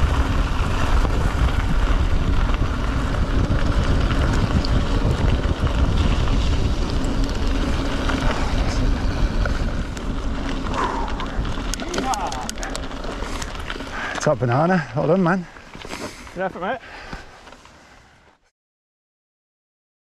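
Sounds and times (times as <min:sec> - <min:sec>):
wind buffeting microphone: 0:00.0 - 0:15.8
bike tyres rolling over gravel: 0:00.0 - 0:18.4.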